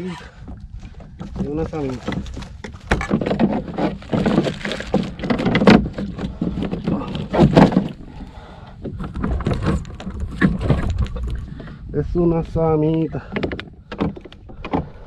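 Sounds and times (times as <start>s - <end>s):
wind rumble on microphone: 0.0s - 15.0s
knocks and splashes: 0.4s - 11.8s.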